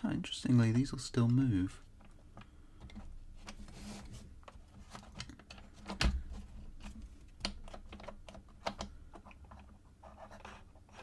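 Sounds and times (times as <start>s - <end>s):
wooden pieces clicking and tapping: 4.5s - 9.8s.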